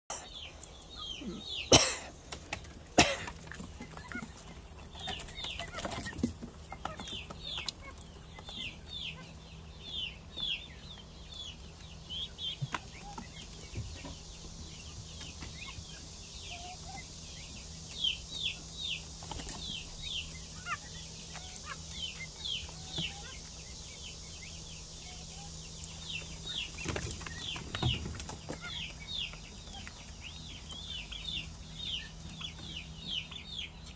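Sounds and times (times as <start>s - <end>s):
young pheasants peeping: 0.1s - 33.9s.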